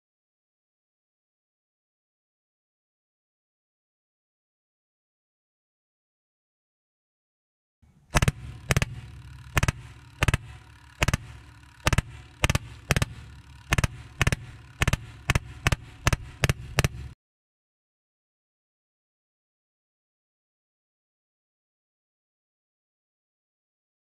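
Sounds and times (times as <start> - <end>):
steady low hum: 7.8 - 17.2
air rifle shots: 7.9 - 17.2.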